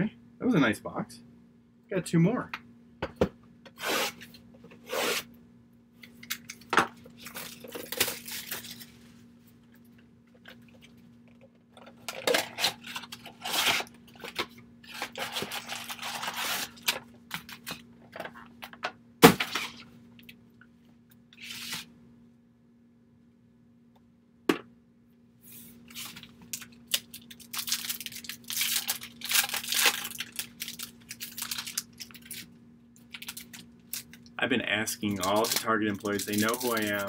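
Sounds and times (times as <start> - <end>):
wrappers crinkling: 6.2 - 9.0, 12.0 - 17.8, 25.9 - 34.3, 35.0 - 37.0
foil packs tearing: 7.2 - 8.9, 12.0 - 17.8, 25.9 - 32.5, 33.1 - 34.2, 35.0 - 37.0
cards rustling: 25.9 - 34.2, 35.0 - 37.0.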